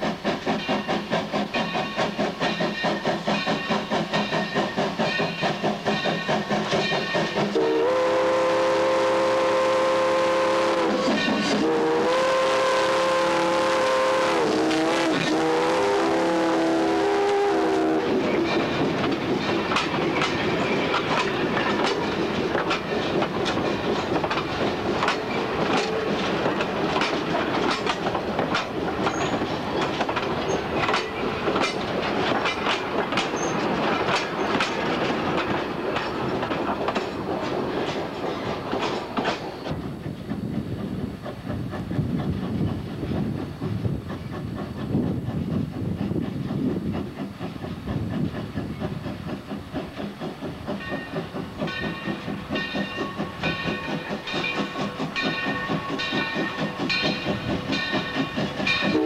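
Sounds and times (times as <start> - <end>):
rumble of wheels on rail: 0.0 - 59.0
train wheels clicking over rail joints: 0.0 - 59.0.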